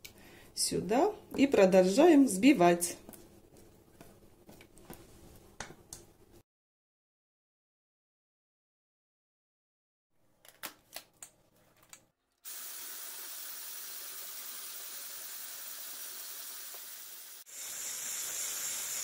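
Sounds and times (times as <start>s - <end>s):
electric hand mixer whisking: 12.5s - 19.0s.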